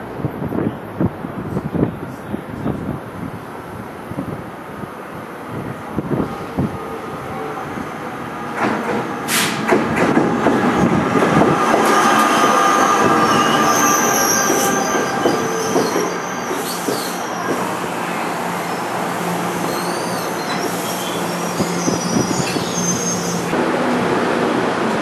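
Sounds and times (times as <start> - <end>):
train rail noise: 0.0 - 25.0
brief sharp noise: 9.3 - 9.7
high wheel squeal: 11.9 - 17.9, 19.6 - 23.5.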